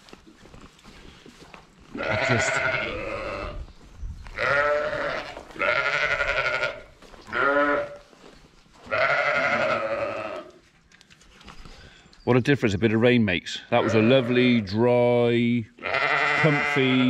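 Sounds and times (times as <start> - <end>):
sheep bleating: 1.9 - 3.6, 4.4 - 8.1, 8.8 - 10.6, 13.7 - 14.8, 15.7 - 17.0.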